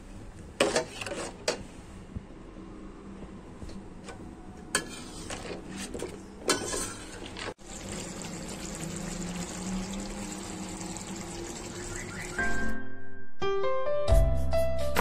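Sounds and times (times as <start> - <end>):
chicken simmering and bubbling: 7.2 - 12.7.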